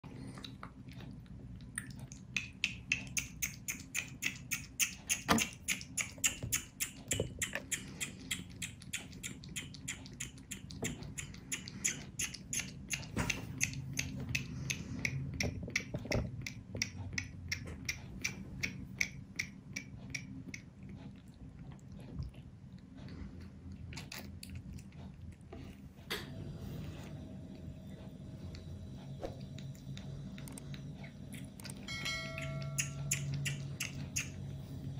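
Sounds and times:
kitten sucking from bottle: 0.2s - 22.6s.

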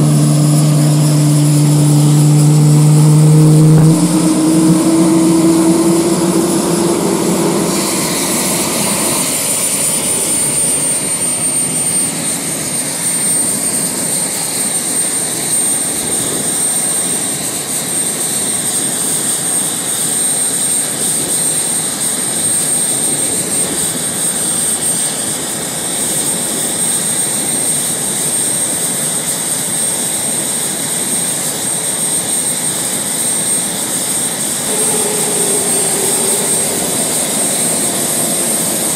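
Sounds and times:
low hum: 0.0s - 11.6s, 34.5s - 38.9s
jet engines whining: 0.0s - 16.6s, 32.2s - 38.9s.

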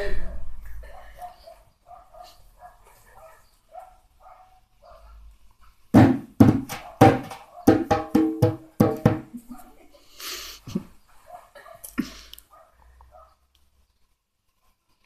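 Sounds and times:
hand drum slapped by palms: 6.0s - 9.4s
faint small sounds: 9.3s - 15.0s.

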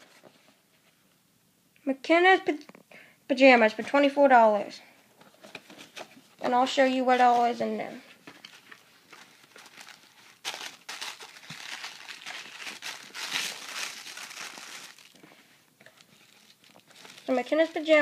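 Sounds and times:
packaging crinkling and rustling: 8.2s - 18.0s.

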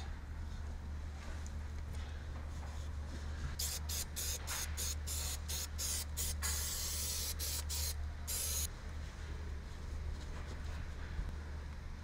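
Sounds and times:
steady low hum: 0.0s - 12.0s
aerosol can spraying: 3.6s - 8.7s.

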